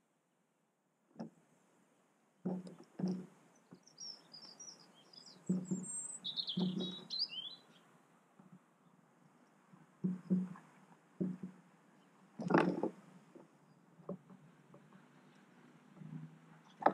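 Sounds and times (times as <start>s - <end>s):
short dull knocks: 2.4s - 3.9s, 5.3s - 7.1s, 9.8s - 11.6s, 15.9s - 16.9s
songbird chirping: 3.0s - 9.0s, 16.0s - 16.9s.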